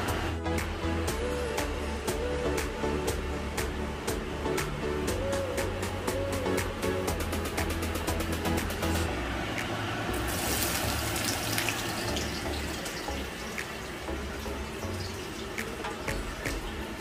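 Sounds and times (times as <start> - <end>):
tap water running into sink: 10.2 - 17.0.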